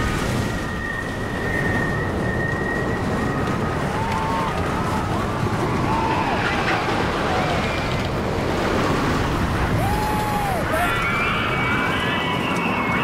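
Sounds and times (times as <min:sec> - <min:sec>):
wind rushing over microphone: 0:00.0 - 0:13.0
riders yelling: 0:09.8 - 0:11.8.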